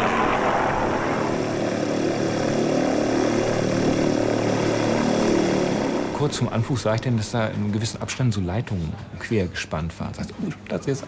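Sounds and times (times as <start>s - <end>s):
light aircraft propeller engine: 0.0s - 7.7s.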